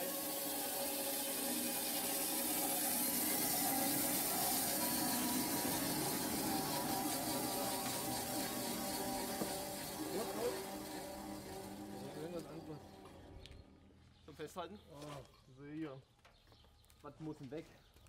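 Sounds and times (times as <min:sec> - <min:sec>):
band sawmill cutting log: 0:00.0 - 0:13.7.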